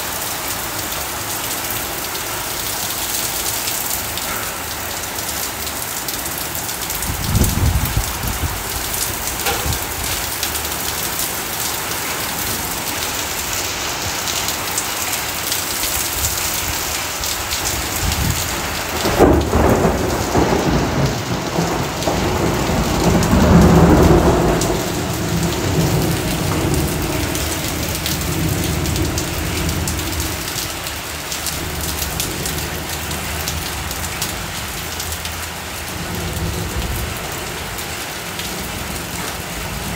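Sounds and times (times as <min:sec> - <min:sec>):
heavy rain and hail: 0:00.0 - 0:39.9
thunder: 0:07.0 - 0:10.9, 0:17.8 - 0:30.7.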